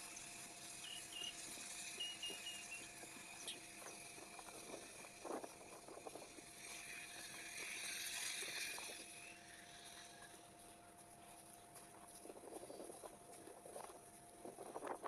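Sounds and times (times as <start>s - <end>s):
high bird chirps: 0.6s - 4.1s.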